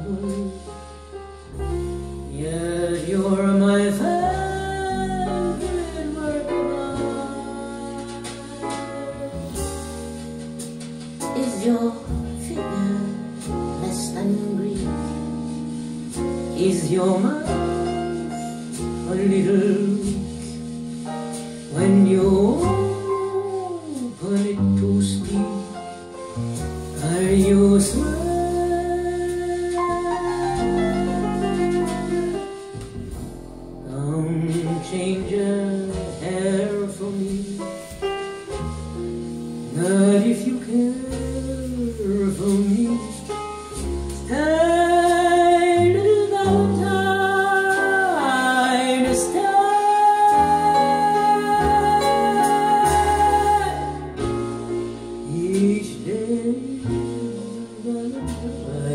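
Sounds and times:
song with singer over stereo: 33.8 - 38.1, 39.7 - 43.4, 44.3 - 58.9.

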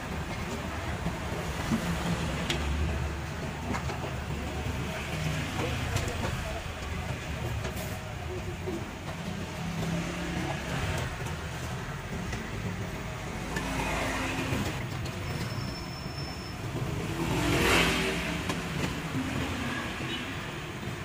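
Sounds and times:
street traffic: 0.0 - 21.0
vehicle passing close by: 16.9 - 18.6.

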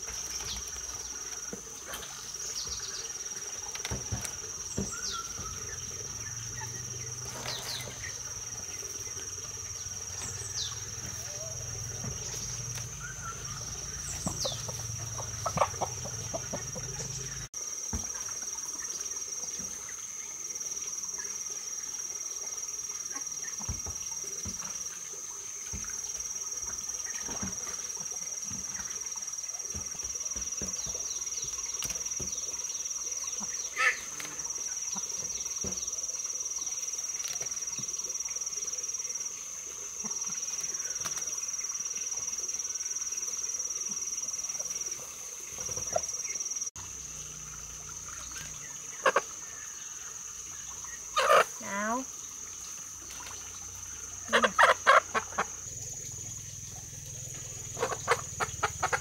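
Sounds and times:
hens clucking: 10.1 - 17.5, 48.9 - 49.4, 51.2 - 51.9, 54.3 - 55.6, 57.8 - 59.0.

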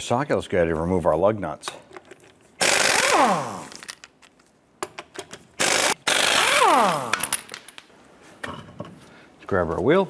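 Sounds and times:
air impact wrench spinning: 2.6 - 3.9, 5.6 - 7.5.

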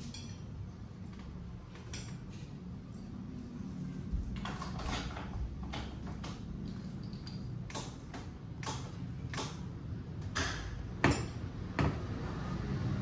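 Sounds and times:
tools clicking and tapping on metal: 0.0 - 2.4, 4.3 - 12.0.

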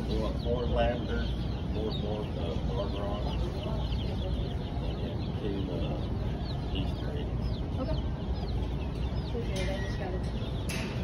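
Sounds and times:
baby chicks peeping: 0.0 - 11.0
low background hum: 0.0 - 11.0.

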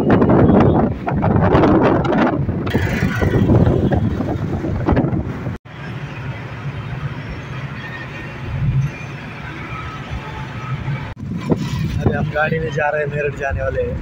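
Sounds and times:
wind buffeting microphone: 0.0 - 5.6, 11.0 - 14.0.

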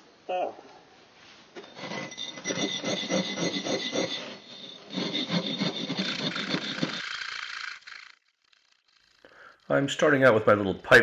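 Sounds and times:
steel pipe rasping on firebrick: 1.6 - 8.2.

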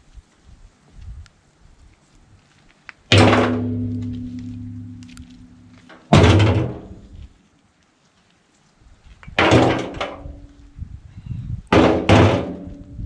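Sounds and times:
scrap metal clanging onto pile: 3.1 - 7.0, 9.4 - 10.3.

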